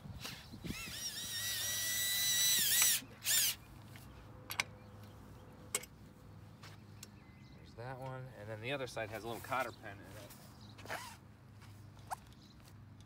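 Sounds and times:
cordless drill motor whine: 0.2 - 3.6.

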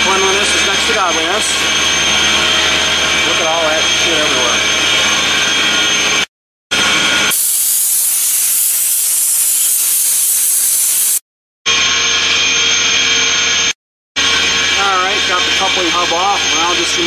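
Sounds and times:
machinery drone: 0.0 - 17.0
spray nozzle hissing: 7.3 - 11.2.

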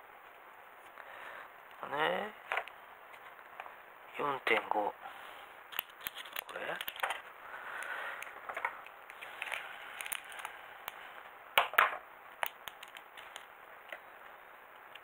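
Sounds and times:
plastic bag crinkling: 5.7 - 7.3, 9.2 - 10.6.

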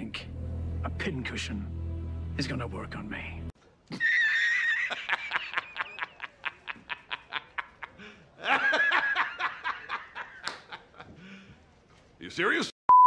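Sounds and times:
man laughing hard: 3.9 - 11.2.

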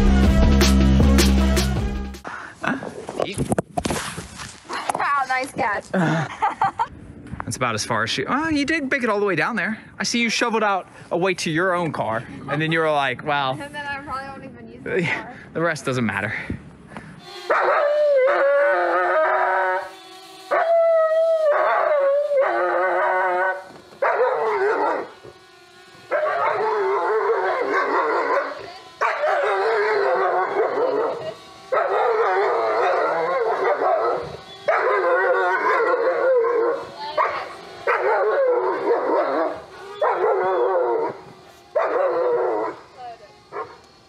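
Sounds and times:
dog howling: 17.5 - 25.4, 26.0 - 43.8.

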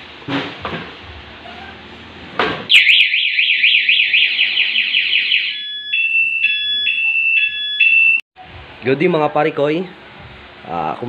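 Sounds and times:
high alarm beep: 2.7 - 8.2
warbling alarm siren: 2.7 - 8.2.

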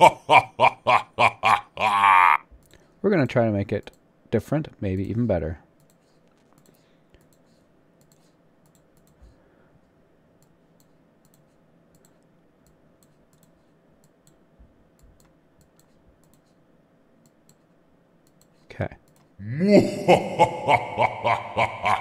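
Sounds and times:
weak steady hum: 2.5 - 22.0
computer mouse clicks: 5.8 - 9.4, 10.4 - 16.6, 17.2 - 19.4.

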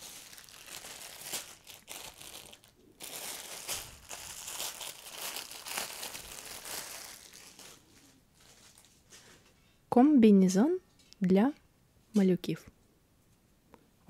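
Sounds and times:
plastic packaging crinkling: 0.0 - 9.2.

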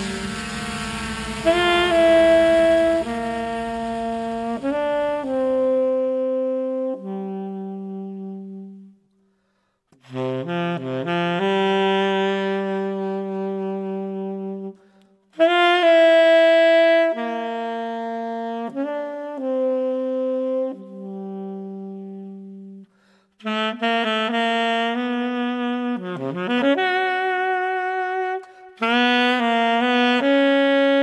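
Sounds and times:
jazz saxophone melody: 0.0 - 9.0, 10.0 - 31.0.

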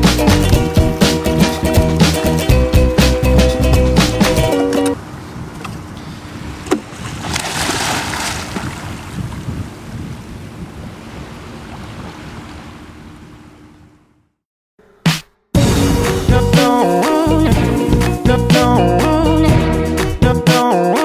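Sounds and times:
surf washing on beach: 5.0 - 13.8
wind buffeting microphone: 5.0 - 14.1.

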